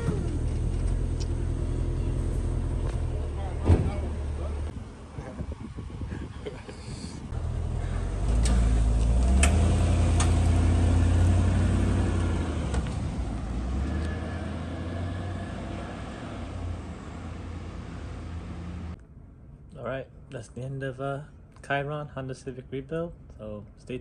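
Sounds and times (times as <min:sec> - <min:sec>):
tow truck engine: 0:00.0 - 0:04.7, 0:07.3 - 0:19.0.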